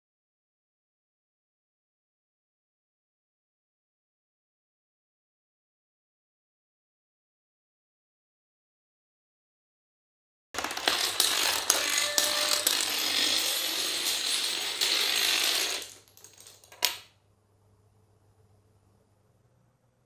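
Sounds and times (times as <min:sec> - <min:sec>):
toy dominoes toppling clatter: 0:10.6 - 0:17.0.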